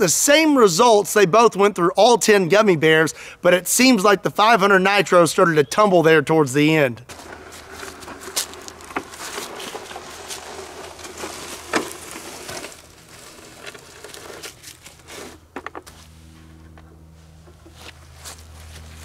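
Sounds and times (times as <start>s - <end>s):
footsteps on dry leaves: 7.1s - 19.0s
rustling: 7.1s - 19.0s.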